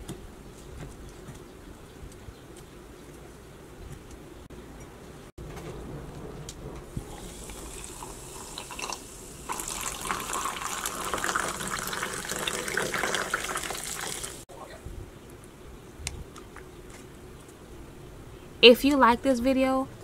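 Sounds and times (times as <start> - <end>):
sparkling water pouring and fizzing: 6.9 - 14.5.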